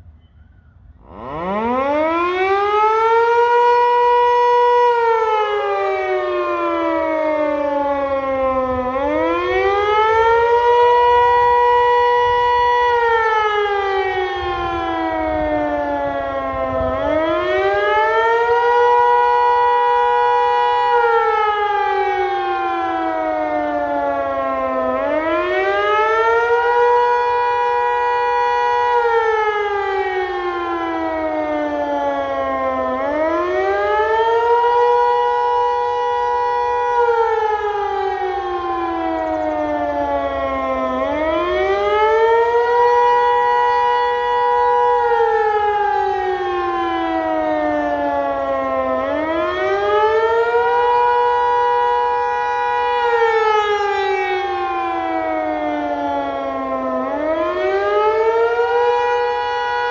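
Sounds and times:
civil defence siren howling: 0:00.0 - 0:59.9.

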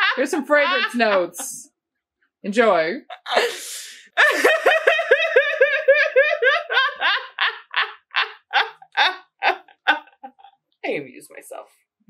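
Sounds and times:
person laughing hard: 0:00.0 - 0:01.6, 0:03.1 - 0:03.6, 0:04.2 - 0:10.5.

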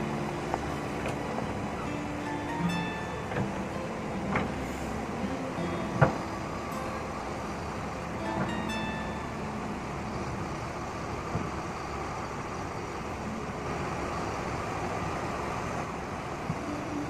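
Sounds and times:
river rushing over boulders: 0:00.0 - 0:12.2
excavator diesel engine running: 0:00.0 - 0:17.0.

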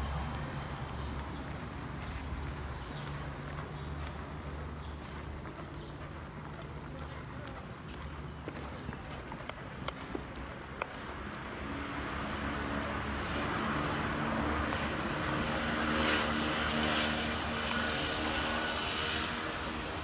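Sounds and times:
road noise: 0:00.0 - 0:20.0
vehicle engine hum passing: 0:10.3 - 0:20.0.

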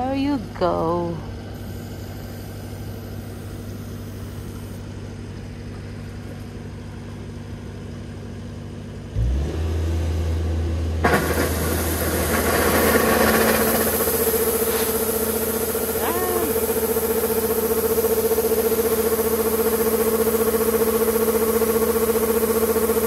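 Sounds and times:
combine harvester engine: 0:00.0 - 0:23.0
grain rushing through auger: 0:11.0 - 0:23.0.

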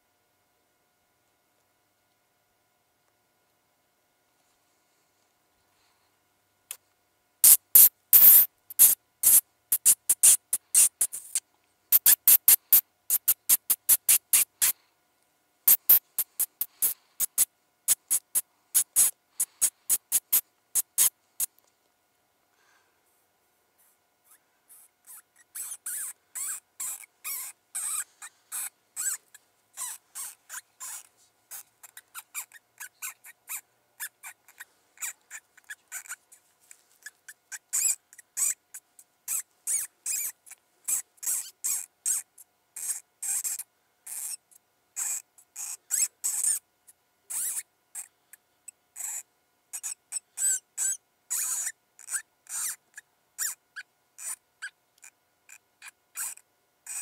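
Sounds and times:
high-pitched squeaks from predator call: 0:07.4 - 0:14.8, 0:15.7 - 0:21.5, 0:24.3 - 0:44.4, 0:45.0 - 0:46.6, 0:47.3 - 0:48.1, 0:49.0 - 0:49.2, 0:49.8 - 0:54.8, 0:55.5 - 0:57.0.

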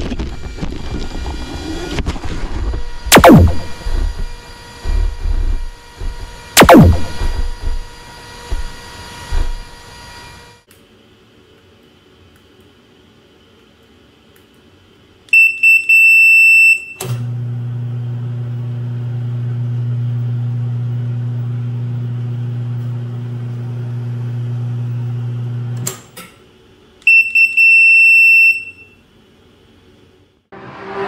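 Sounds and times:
steady electrical hum: 0:02.7 - 0:15.3
electronic beeper beeping: 0:03.1 - 0:04.2, 0:06.6 - 0:07.8.

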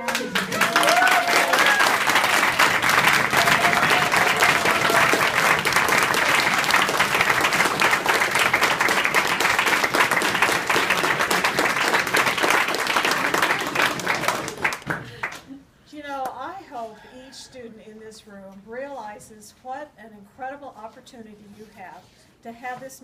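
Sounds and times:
crowd applauding: 0:00.0 - 0:15.4.

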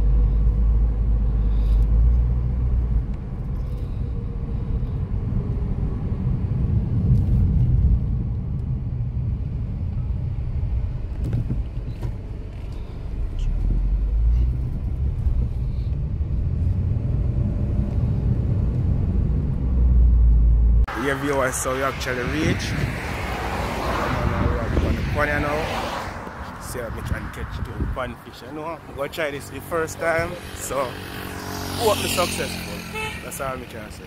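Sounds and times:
car engine and road rumble: 0:00.0 - 0:34.0.

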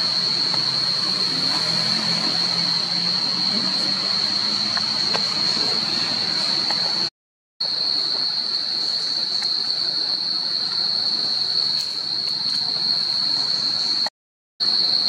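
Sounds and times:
forest insects droning: 0:00.0 - 0:15.0.

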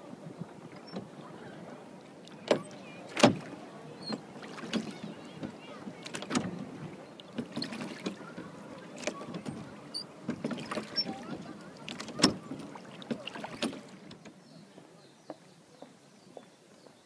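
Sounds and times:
oar splashing in water: 0:00.1 - 0:14.9
oar knocks: 0:09.0 - 0:14.0.

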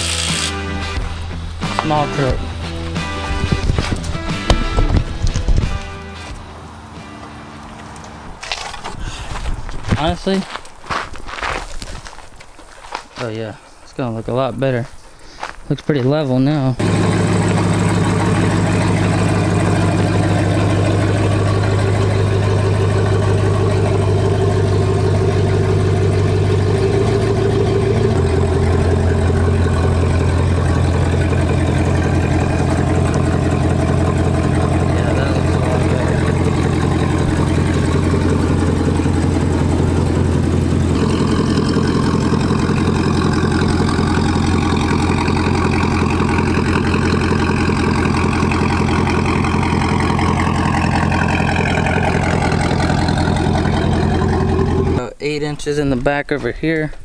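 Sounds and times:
pickup engine idling: 0:16.7 - 0:55.1.

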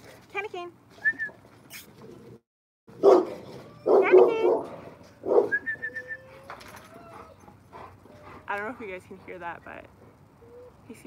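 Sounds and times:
dog barking loudly: 0:03.0 - 0:05.6.

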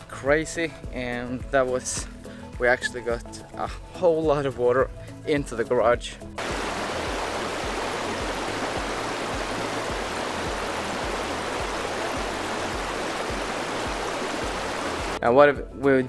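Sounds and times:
faint background music beat: 0:00.0 - 0:16.0
water rushing down a ditch: 0:06.4 - 0:15.2.

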